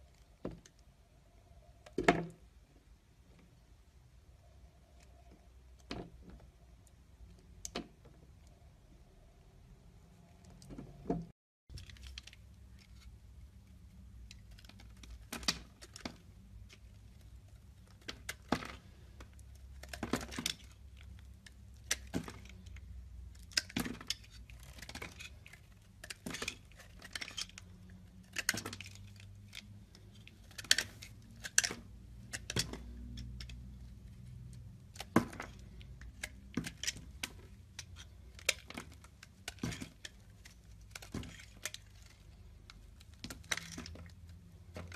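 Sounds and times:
knife scraping soap: 21.8 - 32.6.

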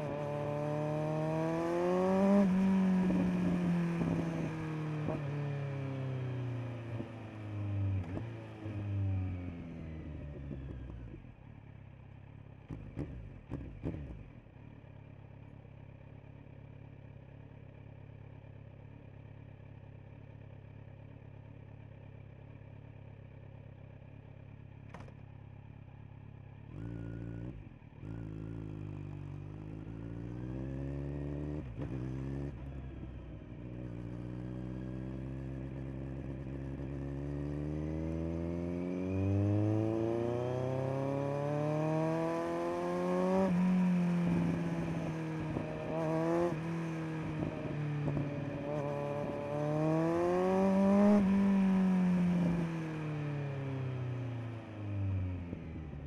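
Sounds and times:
motorcycle engine revving: 0.0 - 11.3, 12.7 - 14.5, 26.6 - 56.0
click: 24.9 - 25.2.

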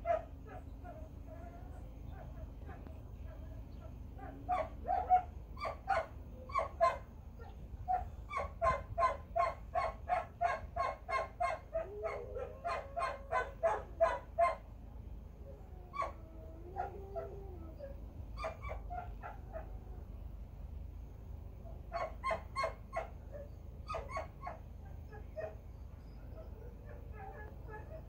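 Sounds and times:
dog barking: 0.0 - 0.6, 4.2 - 14.6, 21.9 - 23.2.

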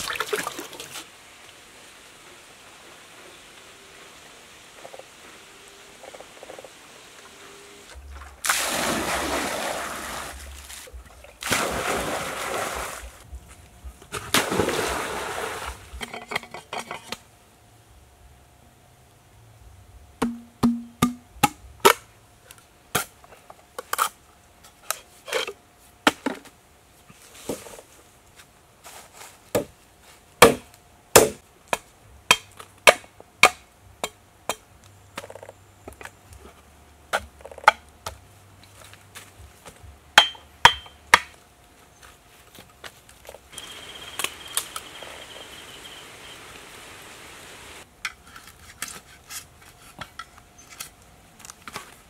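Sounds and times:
machete chopping bamboo: 20.2 - 22.1, 30.4 - 34.6, 40.2 - 41.4.

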